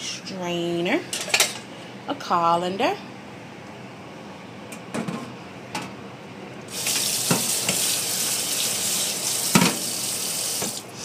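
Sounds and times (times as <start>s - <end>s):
tap water running into sink: 6.7s - 10.9s.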